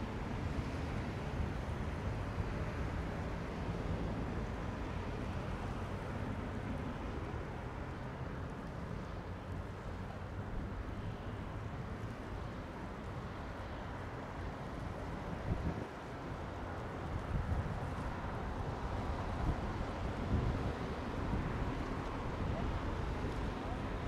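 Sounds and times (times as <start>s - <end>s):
wind noise: 15.1s - 24.0s.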